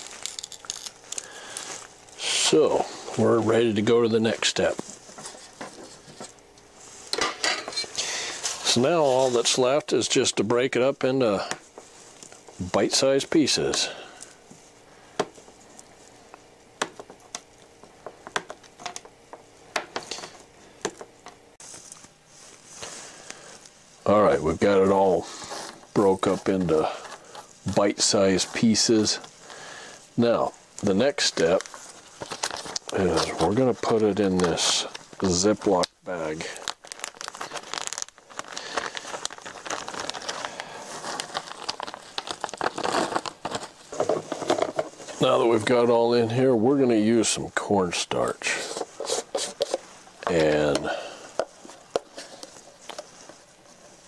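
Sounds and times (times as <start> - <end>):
plastic bag crinkling: 0.0 - 6.2, 30.8 - 45.7.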